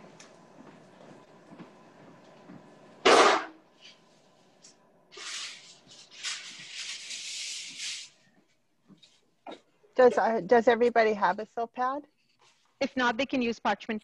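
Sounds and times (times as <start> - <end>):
baking sheet rustling and scraping: 5.1 - 8.2.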